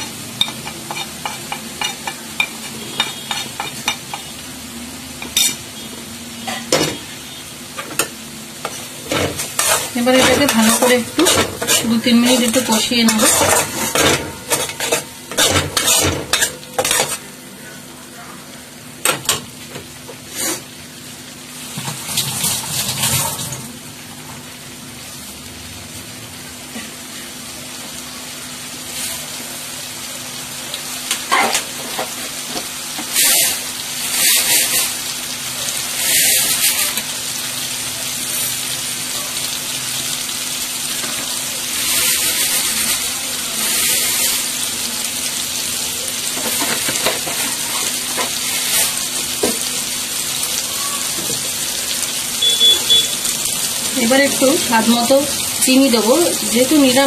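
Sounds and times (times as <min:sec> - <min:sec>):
stirring in a pan: 0:00.0 - 0:04.3, 0:08.6 - 0:17.3, 0:31.1 - 0:35.0
masala sizzling in oil: 0:00.0 - 0:57.0.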